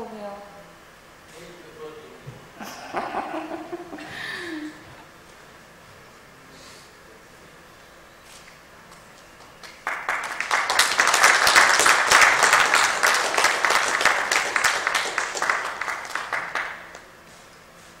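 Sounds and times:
audience applauding: 0:09.4 - 0:17.1.

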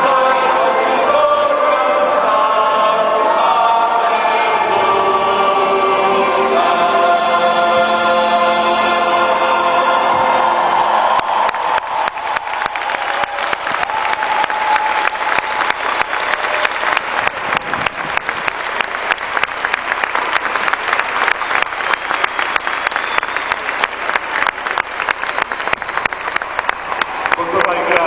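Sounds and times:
stadium crowd applauding: 0:10.0 - 0:28.0.

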